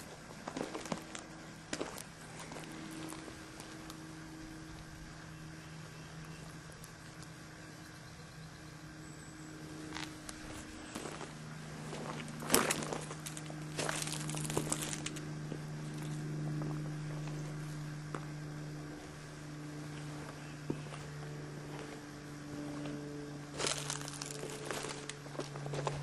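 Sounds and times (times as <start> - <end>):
footsteps on gravel: 0.0 - 3.9, 9.8 - 19.2, 19.9 - 26.0
steady low hum: 0.0 - 26.0.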